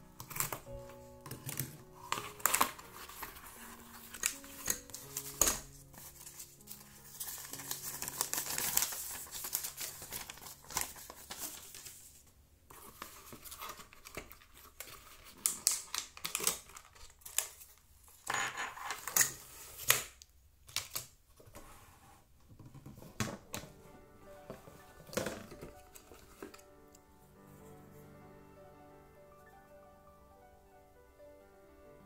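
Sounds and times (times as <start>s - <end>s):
paper packaging crinkling: 0.0s - 18.3s, 24.4s - 26.9s.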